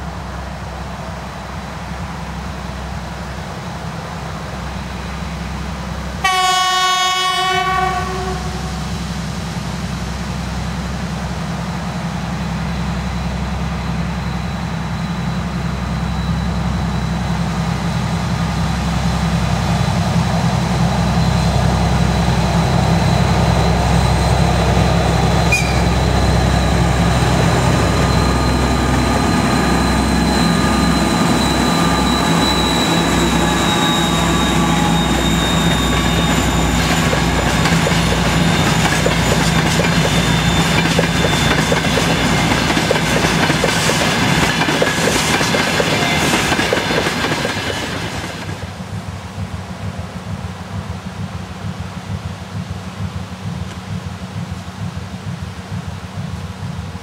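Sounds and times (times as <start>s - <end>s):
diesel locomotive engine drone: 0.0s - 57.0s
high whine: 12.8s - 57.0s.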